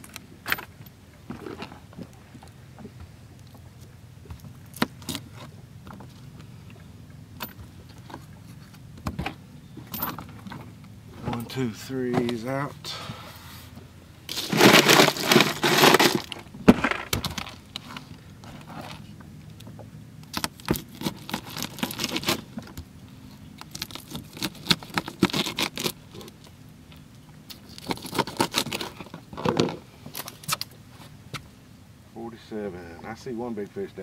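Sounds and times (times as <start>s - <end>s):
ice rattling and crunching: 14.3s - 18.2s, 20.3s - 22.8s, 23.6s - 26.4s, 27.5s - 30.4s.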